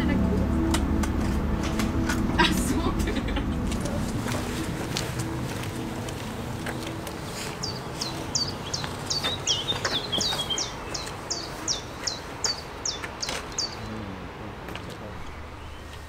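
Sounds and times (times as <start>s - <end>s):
lower bird twittering: 4.5s - 14.0s, 15.1s - 16.0s.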